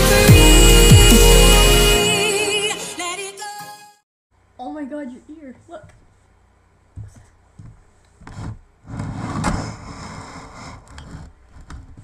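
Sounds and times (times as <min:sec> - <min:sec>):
rough rubbing on microphone: 0:08.2 - 0:12.0.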